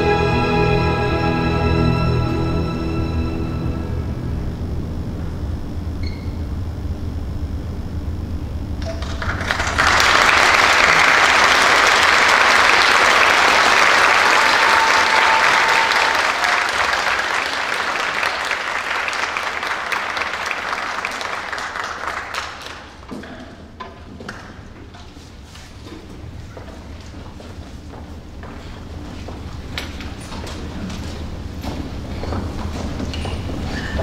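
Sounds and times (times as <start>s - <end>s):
audience applauding: 8.8s - 23.1s.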